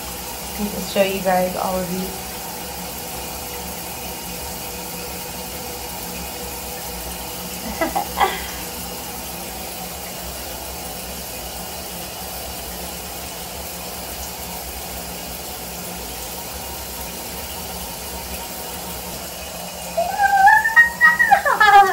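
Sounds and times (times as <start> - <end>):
shower water running: 0.0 - 21.9
dog whimpering: 19.9 - 21.9.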